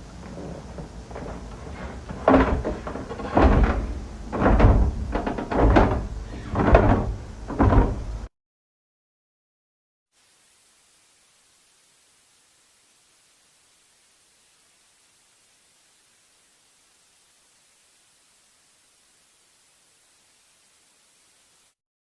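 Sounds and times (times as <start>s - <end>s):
door being pounded on: 1.7s - 8.3s.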